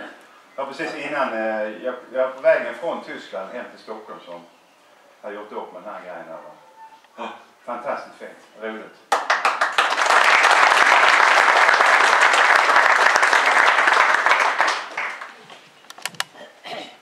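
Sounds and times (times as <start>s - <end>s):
audience applauding: 9.1s - 15.6s.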